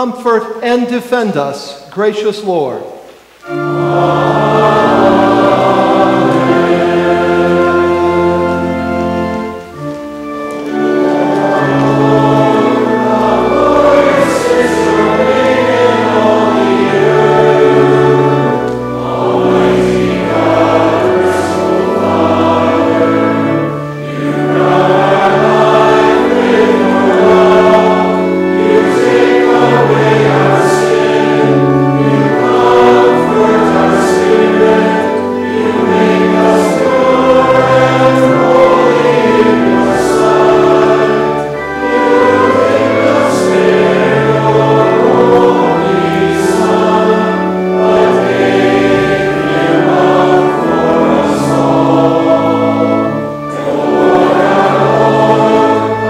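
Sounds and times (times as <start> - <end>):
congregation singing a hymn: 0.0 - 56.0.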